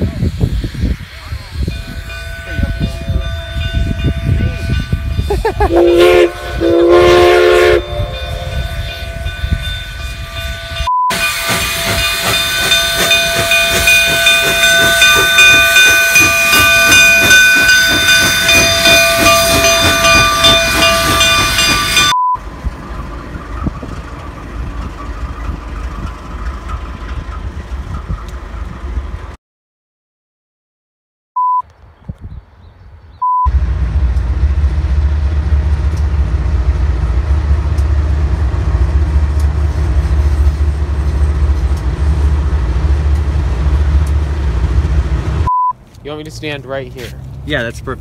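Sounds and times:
train rumbling on rails: 0.0 - 29.4, 33.5 - 45.5
short horn blasts: 5.7 - 8.5.

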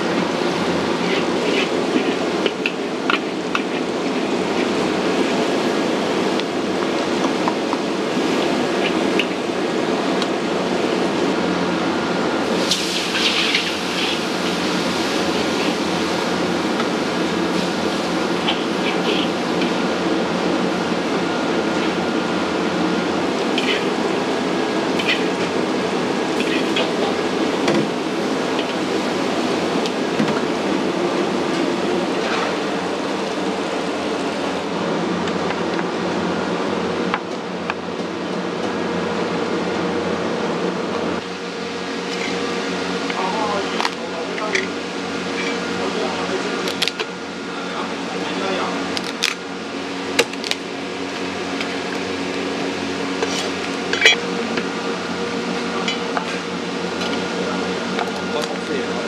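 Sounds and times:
gas burner roar: 0.0 - 59.0
sauce sizzling: 12.4 - 20.0.

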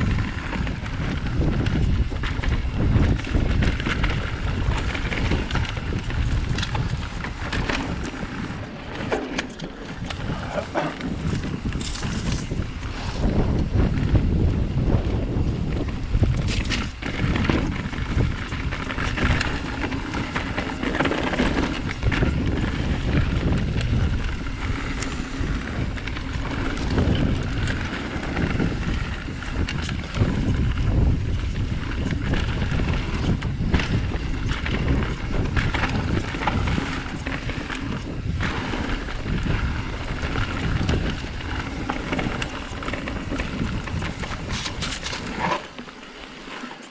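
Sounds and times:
bike clicks and knocks: 0.0 - 46.9
wind buffeting microphone: 0.0 - 46.9
tyres crunching on dirt: 34.6 - 46.9.

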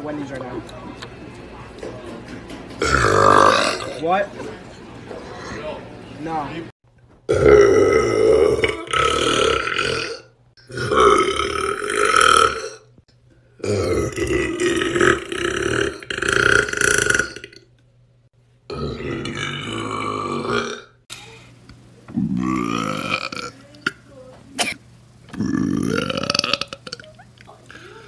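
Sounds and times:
man burping: 2.8 - 4.0, 7.3 - 12.9, 13.6 - 17.6, 18.7 - 21.0, 22.2 - 23.6, 24.6 - 27.9.

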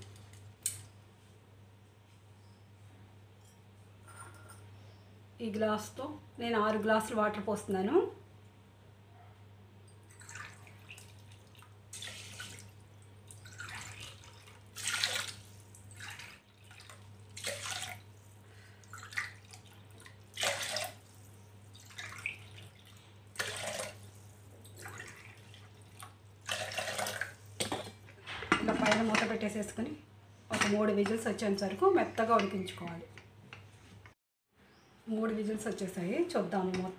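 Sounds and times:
water pouring into a pot: 10.1 - 18.1, 18.8 - 27.4.

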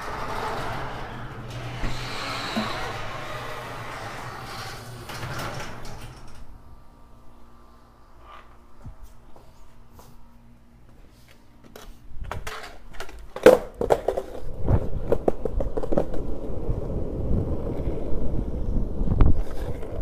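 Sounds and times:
skateboard landing clack: 12.3 - 16.2
skateboard wheels rolling on asphalt: 12.3 - 20.0.

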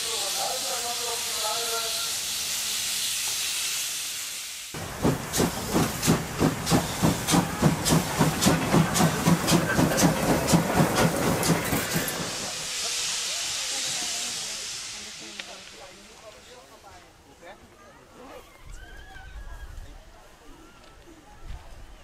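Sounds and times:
steam locomotive hissing: 0.0 - 17.2
locomotive exhaust chuffs: 4.8 - 15.5.

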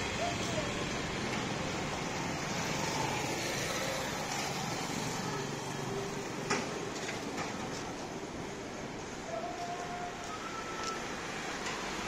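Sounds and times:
motorcycles passing on road: 0.0 - 8.9.

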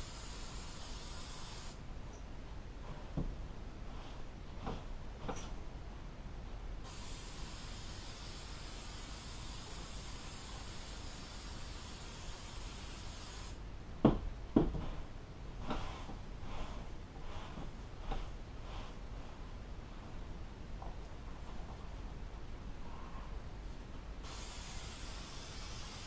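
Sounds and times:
aerosol can spraying: 0.0 - 1.8, 6.9 - 13.6, 24.2 - 26.0.

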